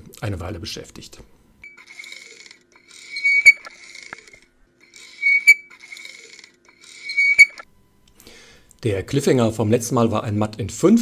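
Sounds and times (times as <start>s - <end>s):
high whistle-like tone: 3.1s - 3.7s, 5.0s - 5.8s, 7.0s - 7.6s.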